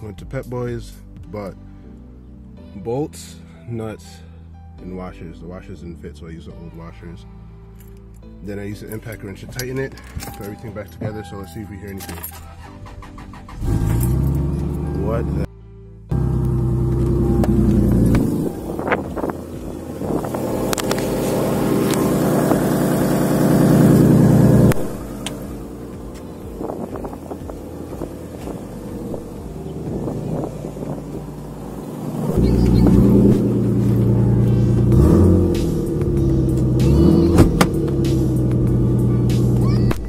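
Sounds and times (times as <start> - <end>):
car engine running: 13.6 - 15.5, 16.1 - 40.0.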